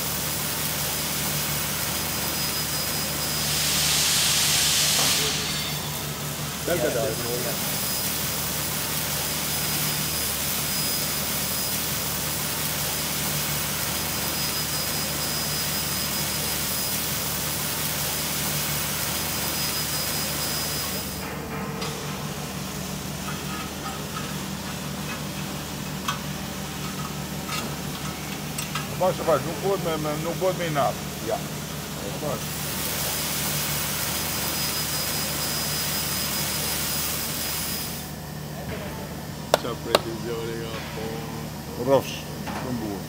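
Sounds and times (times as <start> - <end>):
factory machinery hiss: 0.0 - 23.4, 28.4 - 38.4
machinery hum: 0.0 - 43.0
faint high whistle: 2.3 - 6.1.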